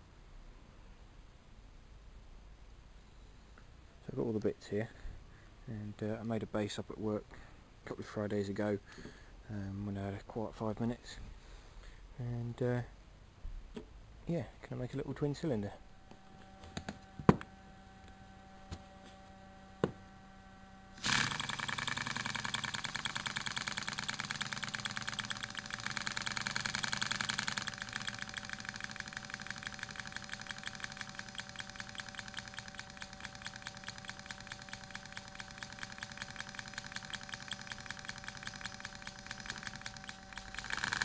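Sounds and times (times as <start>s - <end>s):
model steam engine exhaust puffing: 21.0s - 41.0s.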